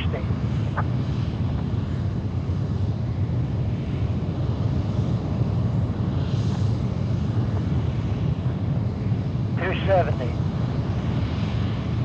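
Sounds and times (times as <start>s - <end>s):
rocket engine deep rumble: 0.0s - 12.0s.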